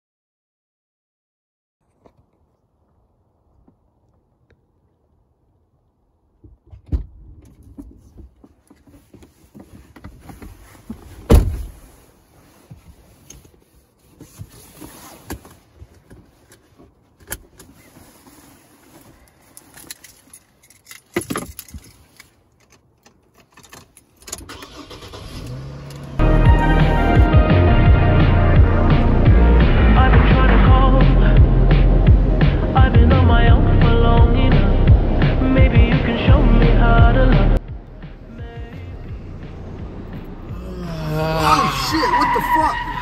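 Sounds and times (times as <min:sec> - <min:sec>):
loud thump: 0:11.3 - 0:11.8
car keys jangling: 0:18.9 - 0:26.2.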